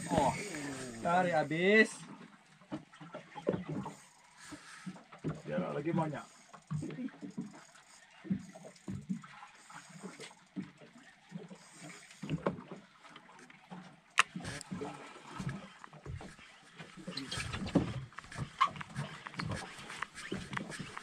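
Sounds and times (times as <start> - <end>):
water slapping against hull: 0.0 - 21.0.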